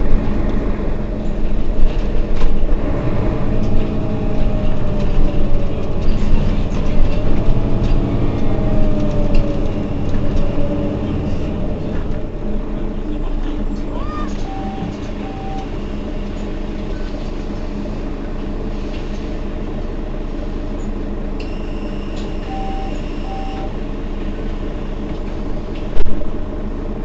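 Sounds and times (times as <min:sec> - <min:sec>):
bus engine humming: 0:00.0 - 0:27.0
short electronic beeps: 0:21.4 - 0:23.7.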